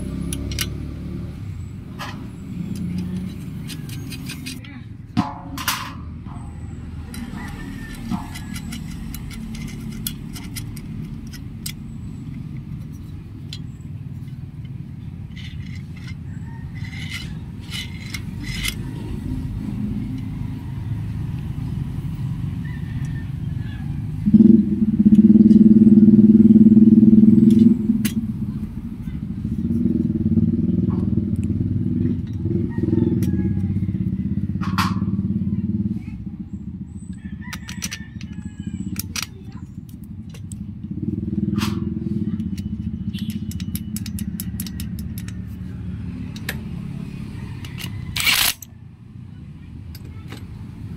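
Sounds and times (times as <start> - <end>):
metal brackets clicking: 0.0 - 20.5, 27.2 - 28.4, 37.4 - 48.7
vehicle engine running: 0.0 - 50.9.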